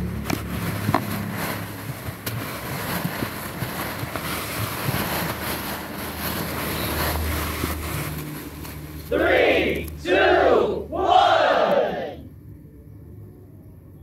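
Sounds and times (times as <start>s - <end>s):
foam balls rustling: 0.0s - 12.1s.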